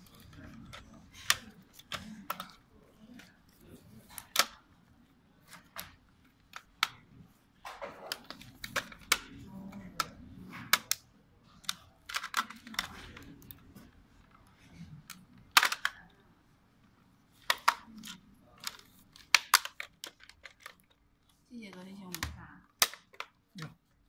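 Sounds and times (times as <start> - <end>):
plastic clicks and snaps: 0.0 - 4.6, 8.0 - 16.1, 17.4 - 23.8.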